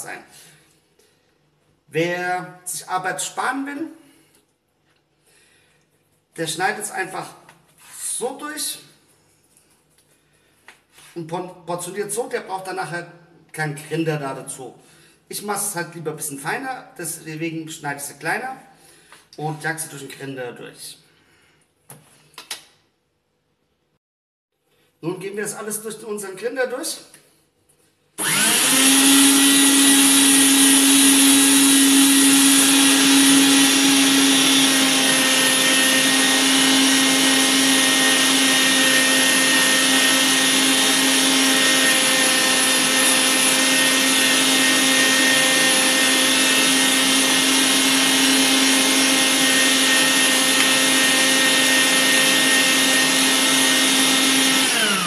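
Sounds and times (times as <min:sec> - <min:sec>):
electric meat grinder running: 0:28.2 - 0:55.0.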